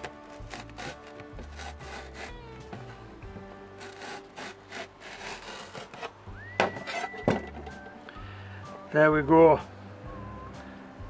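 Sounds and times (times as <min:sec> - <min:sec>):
knife slicing leek on wood: 0:00.0 - 0:02.9, 0:03.8 - 0:06.1
background music: 0:00.0 - 0:11.0.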